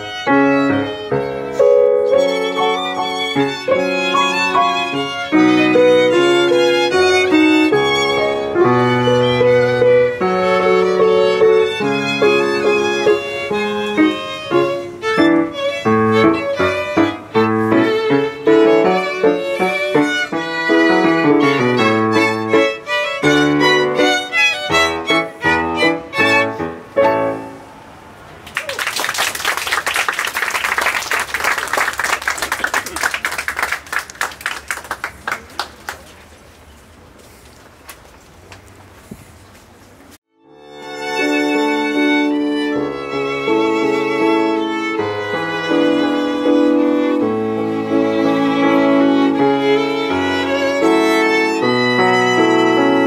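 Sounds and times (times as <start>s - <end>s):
violins and piano classical piece: 0.0s - 28.0s, 40.3s - 53.0s
applause: 28.4s - 36.3s.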